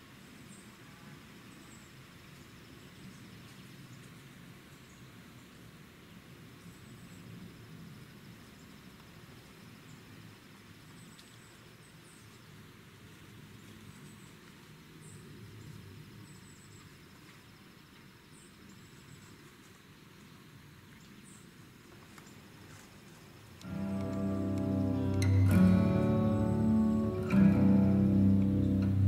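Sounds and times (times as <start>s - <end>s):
low rumble: 23.7s - 29.0s.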